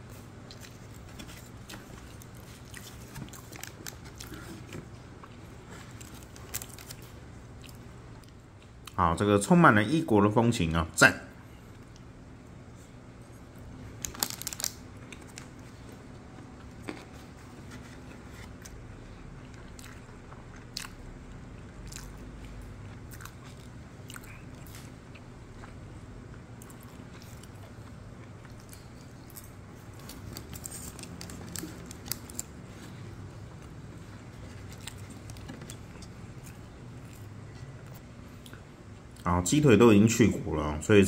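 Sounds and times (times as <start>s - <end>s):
low steady hum: 0.0s - 41.0s
person chewing: 0.4s - 9.0s, 18.0s - 21.0s, 21.6s - 32.5s.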